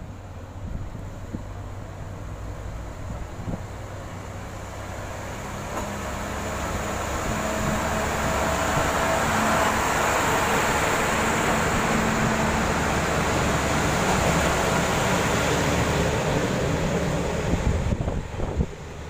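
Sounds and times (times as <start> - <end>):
diesel railcar engine: 0.0 - 19.0.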